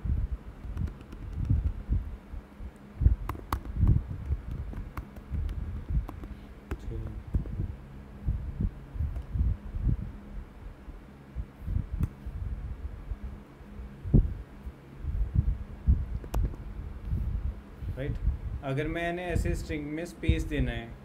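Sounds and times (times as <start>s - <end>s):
faint steady hum: 0.0s - 21.0s
keyboard typing: 0.6s - 1.8s, 3.2s - 7.5s.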